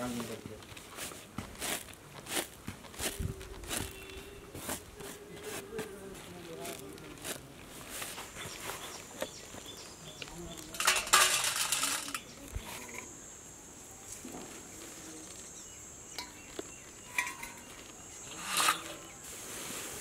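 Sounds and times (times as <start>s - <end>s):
light clinks and rustles: 10.4s - 13.1s, 16.1s - 19.2s
dried insects pouring rattle: 10.5s - 13.0s.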